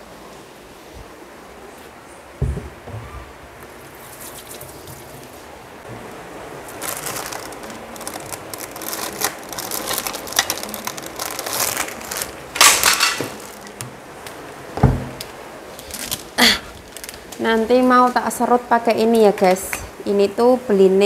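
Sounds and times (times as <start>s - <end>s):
dull thump: 2.4s - 3.3s, 14.8s - 15.2s.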